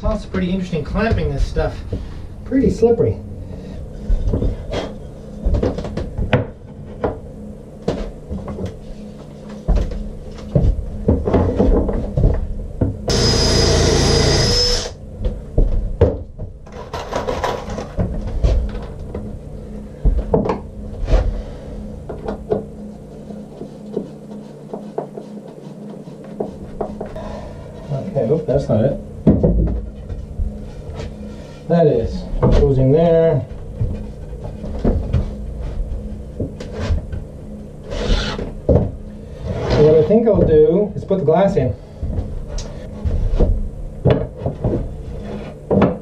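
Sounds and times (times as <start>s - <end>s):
small power tool running: 13.1s - 15.0s.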